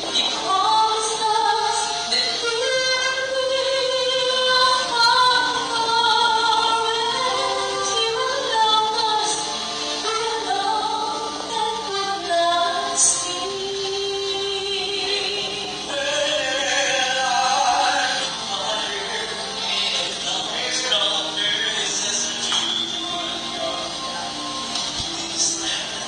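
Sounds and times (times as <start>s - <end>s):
woman singing gospel song: 0.0s - 18.8s.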